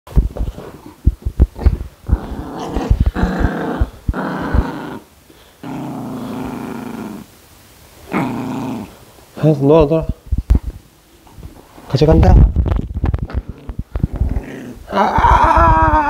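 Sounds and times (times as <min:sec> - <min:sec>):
puppy growling: 0:01.6 - 0:07.3, 0:08.0 - 0:09.0, 0:13.2 - 0:16.0.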